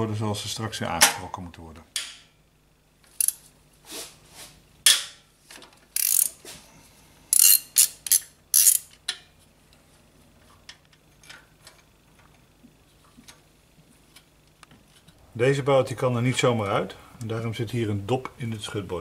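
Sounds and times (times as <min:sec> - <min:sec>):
ratchet wrench clicking: 0:03.1 - 0:03.4, 0:06.0 - 0:06.4, 0:07.3 - 0:09.0.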